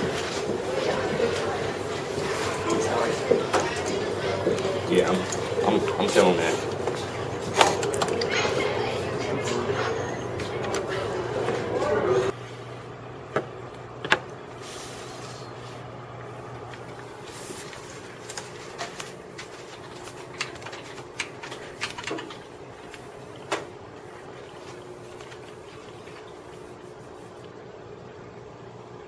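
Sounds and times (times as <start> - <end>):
low room hum: 0.0 - 29.0.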